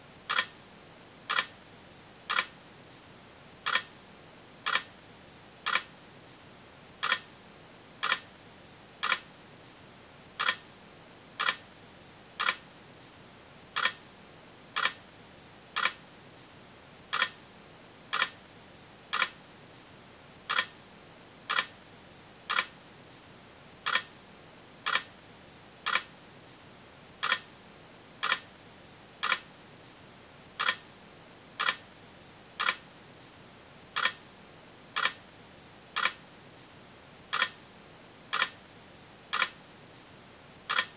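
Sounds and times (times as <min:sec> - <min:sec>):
faint hiss: 0:00.0 - 0:40.9
sharp clicks: 0:00.3 - 0:00.5, 0:01.3 - 0:01.5, 0:02.3 - 0:02.5, 0:09.0 - 0:09.2, 0:10.4 - 0:10.6, 0:11.4 - 0:11.6, 0:12.4 - 0:12.6, 0:13.8 - 0:14.0, 0:14.8 - 0:15.0, 0:15.8 - 0:16.0, 0:17.1 - 0:17.4, 0:18.1 - 0:18.4, 0:19.1 - 0:19.4, 0:20.5 - 0:20.7, 0:21.5 - 0:21.7, 0:22.5 - 0:22.7, 0:25.9 - 0:26.1, 0:27.2 - 0:27.4, 0:28.2 - 0:28.4, 0:29.2 - 0:29.4, 0:30.6 - 0:30.8, 0:31.6 - 0:31.8, 0:32.6 - 0:32.8, 0:34.0 - 0:34.2, 0:35.0 - 0:35.2, 0:36.0 - 0:36.2, 0:37.3 - 0:37.6, 0:38.3 - 0:38.6, 0:39.3 - 0:39.6, 0:40.7 - 0:40.9.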